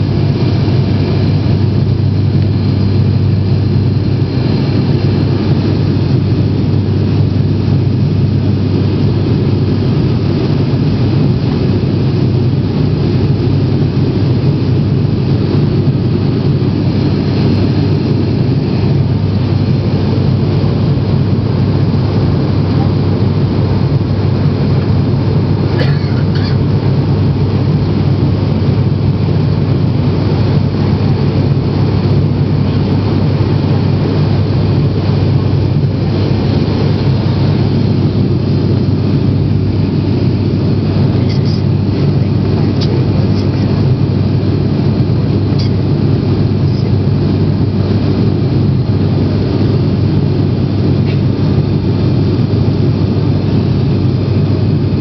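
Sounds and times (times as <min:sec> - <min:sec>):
propeller plane engines droning: 0:00.0 - 0:55.0.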